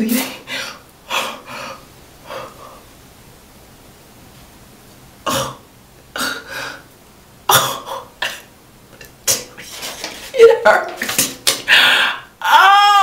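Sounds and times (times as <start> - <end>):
woman crying out in pain: 11.7 - 13.0.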